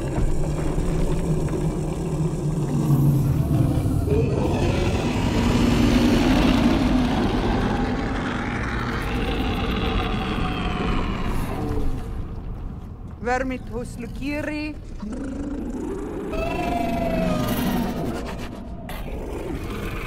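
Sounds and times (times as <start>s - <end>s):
low dragon growl: 0.0s - 12.4s, 15.0s - 20.0s.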